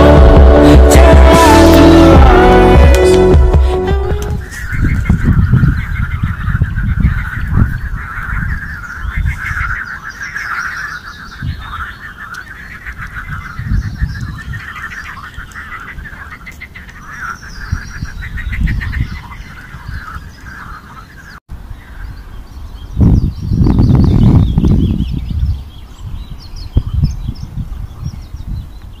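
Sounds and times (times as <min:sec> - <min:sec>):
chorus of pulsed animal calls: 0:00.0 - 0:22.1
birds singing: 0:04.2 - 0:29.0
wind buffeting microphone: 0:04.2 - 0:29.0.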